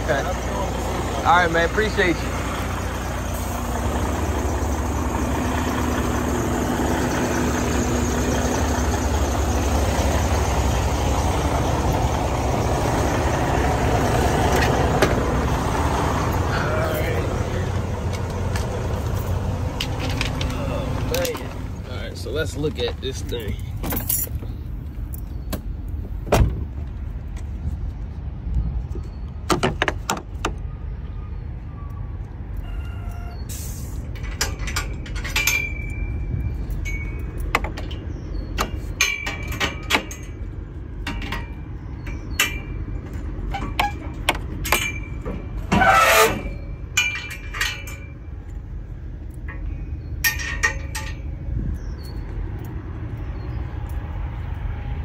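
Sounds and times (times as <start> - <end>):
steady low rumble: 46.5 - 55.0.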